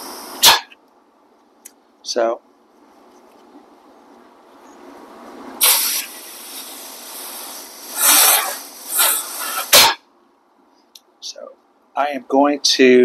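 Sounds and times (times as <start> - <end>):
compressed air hissing from hose: 0.0 - 0.7, 5.6 - 10.0.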